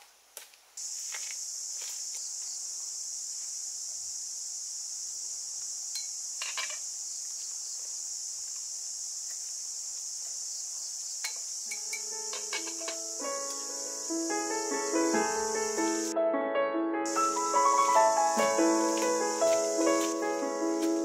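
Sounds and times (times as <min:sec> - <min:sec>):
insects droning: 0:00.6 - 0:16.1, 0:17.1 - 0:21.0
chopsticks and pot lid clinking: 0:11.7 - 0:13.0.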